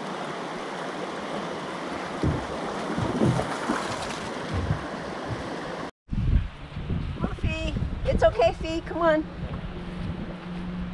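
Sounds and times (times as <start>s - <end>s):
creek running over rocks: 0.0s - 5.9s
low thumps on microphone: 2.2s - 5.6s.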